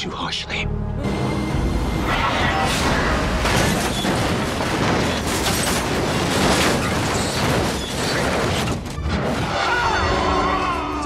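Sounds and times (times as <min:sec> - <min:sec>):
heavy impacts: 0:01.6 - 0:09.5
car rolling over and crashing: 0:02.1 - 0:09.6.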